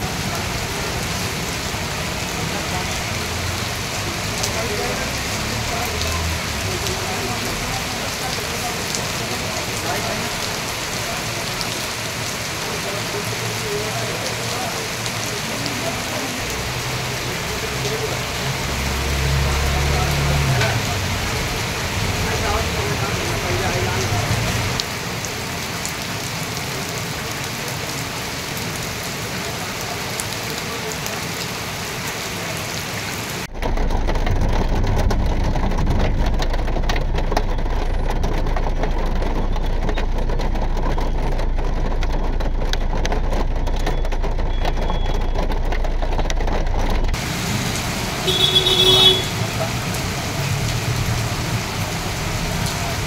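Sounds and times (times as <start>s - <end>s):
heavy rain hissing: 0.0s - 38.1s, 47.1s - 53.0s
low rumble: 33.5s - 43.8s.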